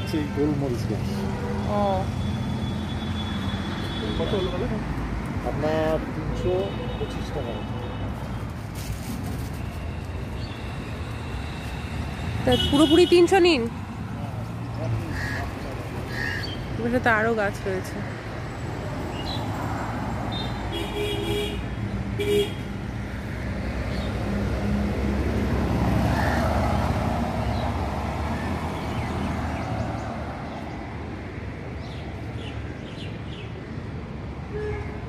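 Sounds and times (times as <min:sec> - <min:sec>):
road traffic rumbling: 0:00.0 - 0:35.0.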